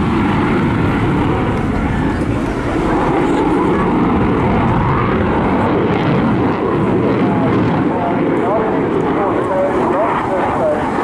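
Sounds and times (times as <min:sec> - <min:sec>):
fighter jet roaring: 0:00.0 - 0:11.0.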